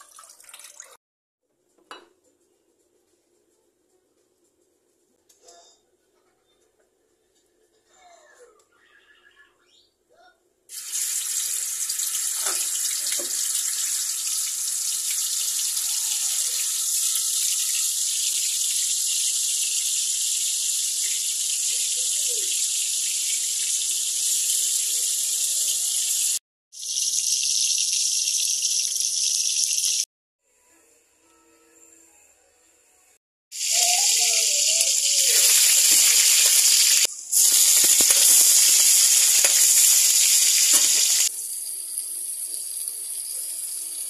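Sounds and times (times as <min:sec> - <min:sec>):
tofu sizzling in hot oil: 0:10.7 - 0:30.0, 0:33.5 - 0:44.0.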